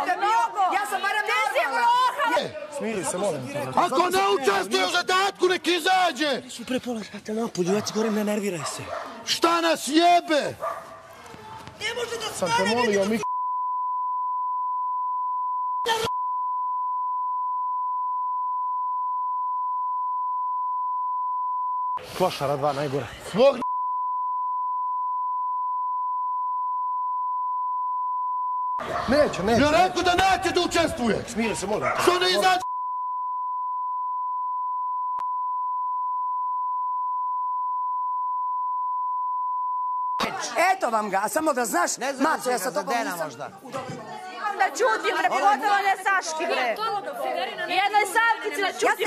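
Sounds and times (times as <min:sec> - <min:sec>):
censor bleep tone: 0:13.2 - 0:22.0, 0:23.6 - 0:28.8, 0:32.6 - 0:40.2.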